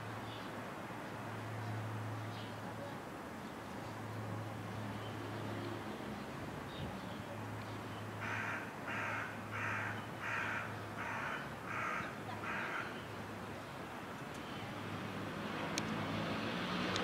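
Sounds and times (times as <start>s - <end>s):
crow cawing: 8.2s - 13.0s.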